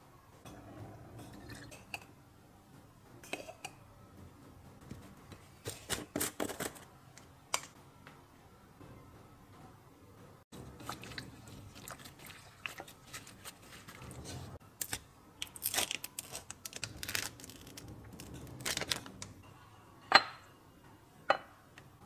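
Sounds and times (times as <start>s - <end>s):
plastic gloves crinkling and squelching: 10.6s - 19.3s.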